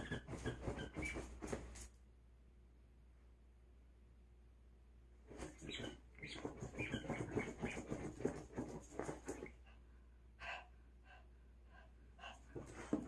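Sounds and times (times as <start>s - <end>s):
dog scratching at a pillow: 0.0s - 1.8s, 5.3s - 9.5s.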